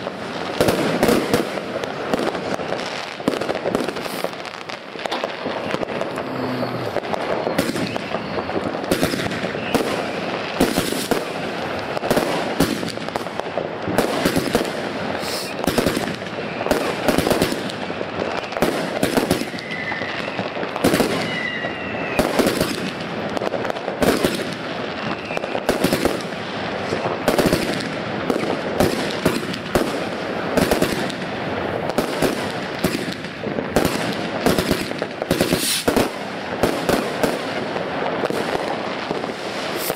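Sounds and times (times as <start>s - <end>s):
fireworks bangs and crackling: 0.0s - 39.9s
firework whistles: 0.6s - 13.0s, 14.1s - 23.1s, 24.8s - 26.1s, 32.2s - 37.6s, 38.4s - 39.9s.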